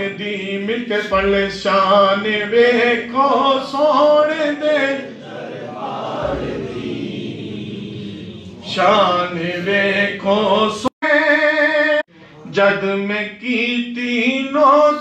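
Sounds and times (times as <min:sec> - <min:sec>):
man chanting over loudspeakers: 0:00.0 - 0:15.0.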